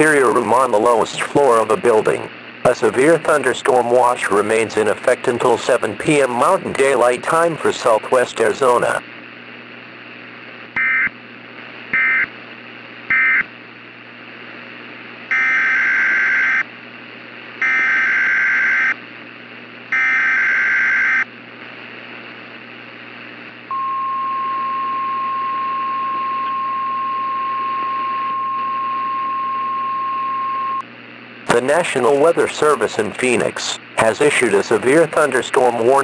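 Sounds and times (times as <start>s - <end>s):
radio hum and hiss: 0.0s - 36.0s
single-pitch warning alarm tone: 10.8s - 11.1s, 12.0s - 12.3s, 13.1s - 13.5s, 15.3s - 16.6s, 17.6s - 19.0s, 19.9s - 21.3s, 23.7s - 30.8s.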